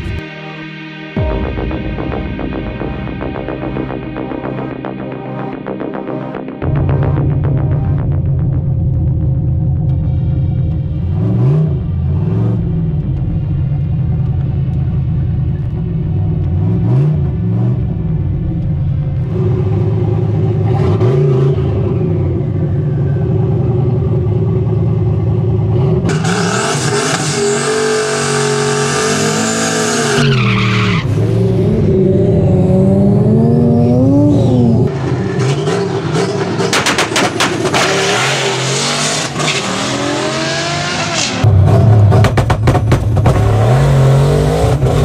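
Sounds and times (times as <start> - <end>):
car engine revving: 1.2 - 45.0.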